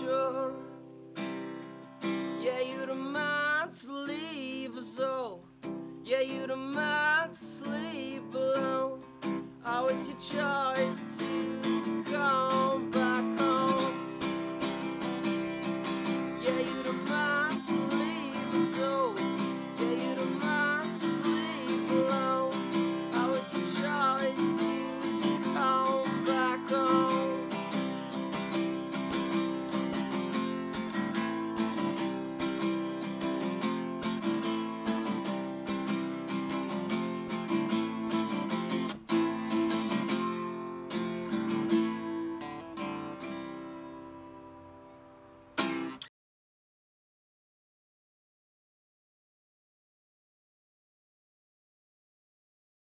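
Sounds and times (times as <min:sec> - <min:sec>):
wordless singing: 0:00.0 - 0:00.8, 0:02.4 - 0:05.4, 0:06.0 - 0:09.0, 0:09.6 - 0:15.1, 0:16.0 - 0:28.9
acoustic guitar strumming: 0:00.0 - 0:46.1.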